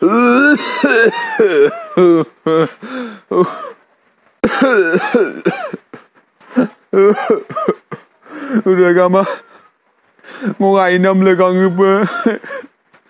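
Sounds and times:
person coughing and throat clearing: 0.0s - 3.8s, 4.4s - 8.1s.

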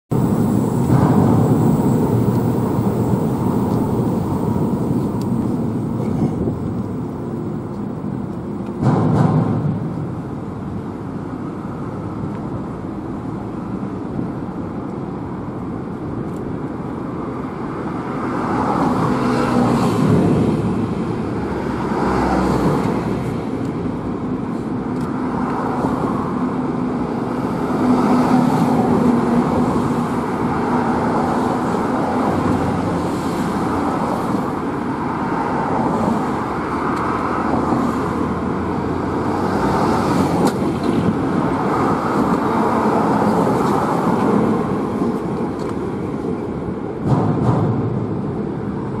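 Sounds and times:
road traffic passing: 0.1s - 49.0s.

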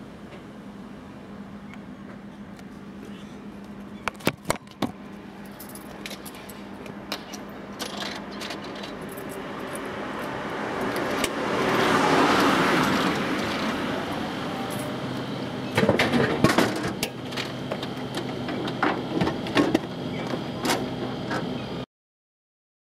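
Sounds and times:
car passing: 9.4s - 15.7s.

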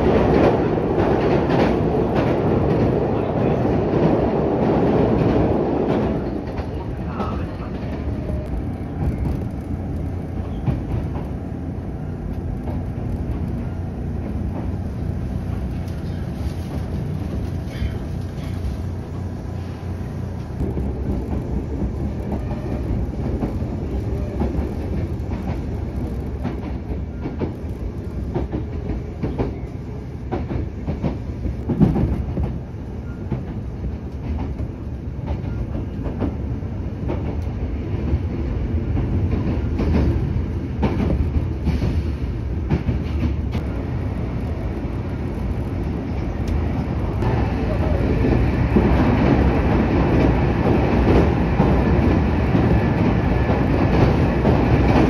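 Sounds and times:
train low rumble: 0.0s - 55.0s
wheels clicking over rail joints: 20.4s - 29.7s.

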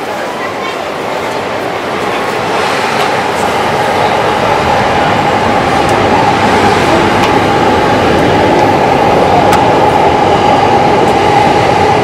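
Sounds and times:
train rumbling past: 0.0s - 12.0s
high whine: 1.3s - 12.0s.

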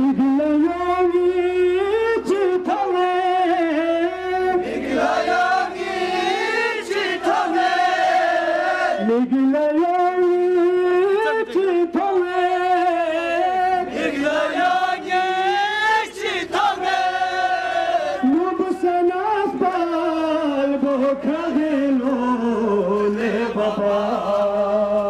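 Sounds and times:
crowd of men chanting: 4.4s - 9.1s, 13.2s - 25.0s
lead voice on microphone: 8.9s - 14.0s, 18.0s - 25.0s.

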